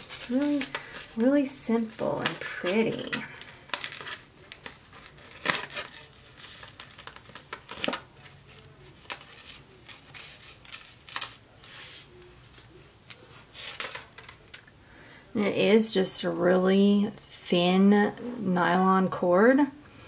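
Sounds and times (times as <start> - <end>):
plastic packaging rustling: 0.0 - 14.7.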